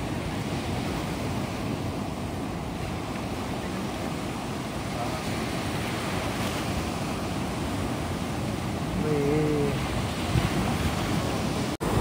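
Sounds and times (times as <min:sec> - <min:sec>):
sea surf breaking: 0:00.0 - 0:12.0
wind buffeting microphone: 0:00.0 - 0:12.0.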